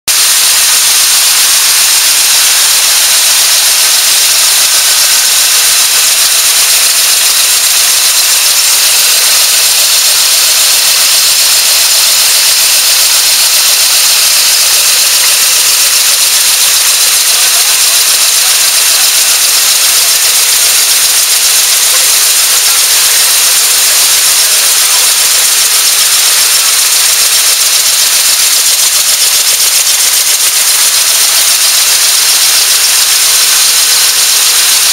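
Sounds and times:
machine hissing with high whine: 0.1 - 34.9.

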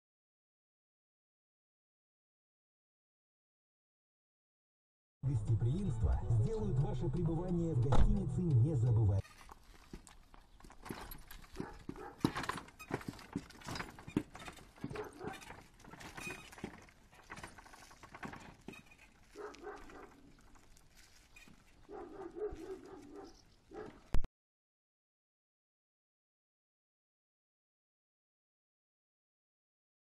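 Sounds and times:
horse hooves clip-clopping on road: 9.5 - 20.9.

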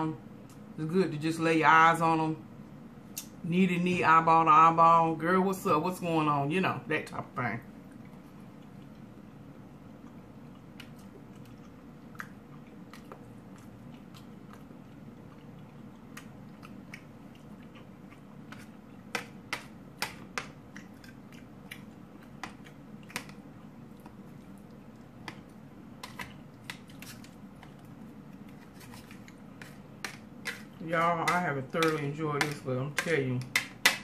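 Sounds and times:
quiet chewing: 7.7 - 32.6.

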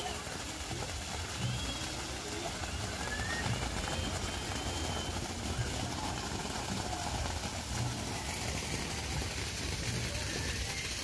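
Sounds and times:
water pouring into a pool: 0.0 - 11.0.

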